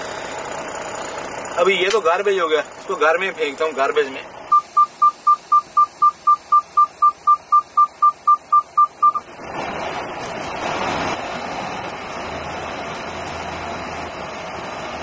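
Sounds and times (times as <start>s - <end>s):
vehicle moving off: 0.0s - 15.0s
electronic warning beeper: 3.6s - 9.2s.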